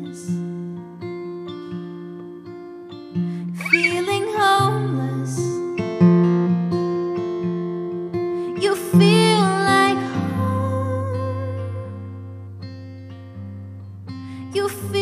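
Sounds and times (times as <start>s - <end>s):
woman singing: 0.0s - 1.4s, 3.4s - 6.0s, 8.1s - 12.4s, 14.3s - 15.0s
strummed acoustic guitar: 0.0s - 15.0s.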